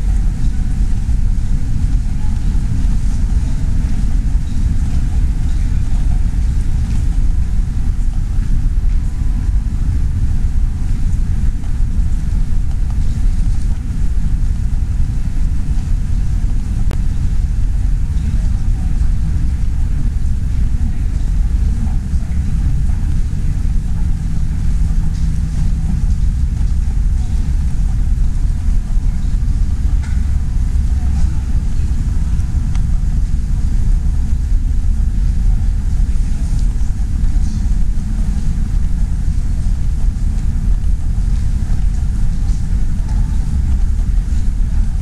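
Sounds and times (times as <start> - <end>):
low rumble in a large hall: 0.0 - 45.0.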